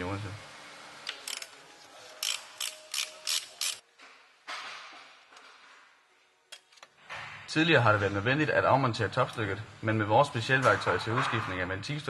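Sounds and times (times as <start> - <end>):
ratchet wrench clicking: 1.1 - 1.5, 2.2 - 3.8.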